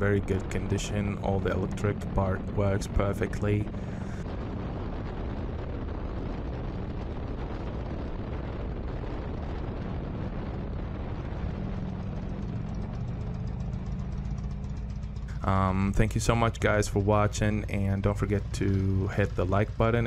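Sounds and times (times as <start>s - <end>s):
motorcycle engine rumble: 0.0s - 20.0s
wind and road noise: 0.0s - 20.0s.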